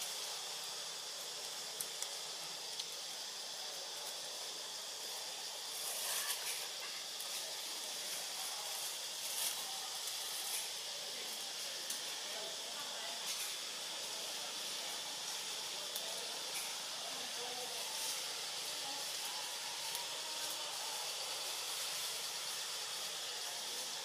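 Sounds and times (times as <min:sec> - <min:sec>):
tree canopy hiss: 0:00.0 - 0:24.0
faint ticks: 0:01.8 - 0:03.0.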